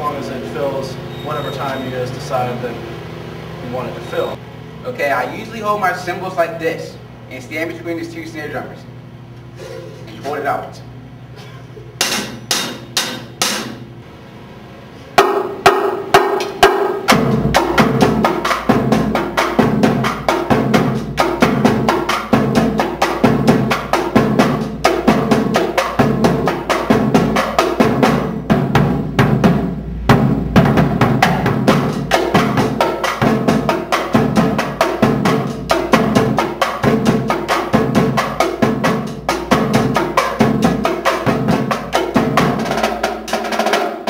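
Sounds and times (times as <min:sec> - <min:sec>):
tenor drums: 0:11.4 - 0:14.0, 0:15.1 - 0:44.0
snare drums: 0:12.0 - 0:13.9, 0:15.2 - 0:44.0
bass drum: 0:15.2 - 0:43.6.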